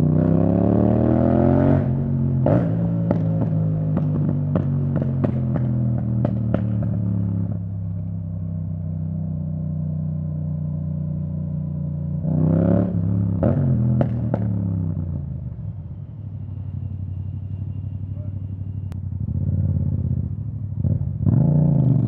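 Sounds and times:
motorcycle engine running: 0:12.9 - 0:22.0.

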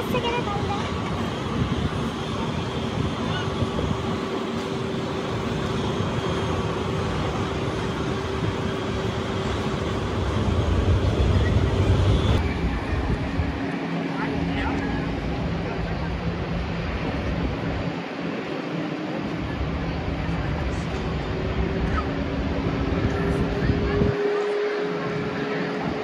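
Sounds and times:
jet engines whining: 0:00.0 - 0:26.0.

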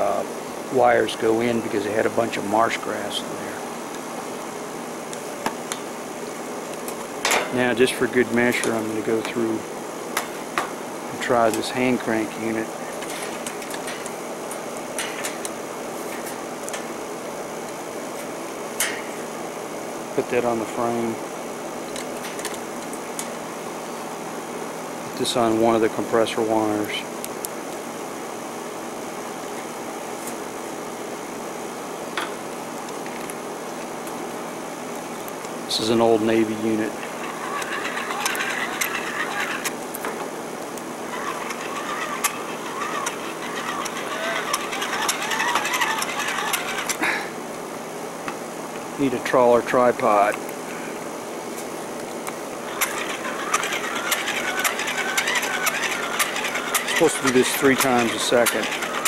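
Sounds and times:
mechanical hum: 0:00.0 - 0:59.0
hand-cranked generator whirring: 0:35.7 - 0:47.3, 0:52.5 - 0:59.0.

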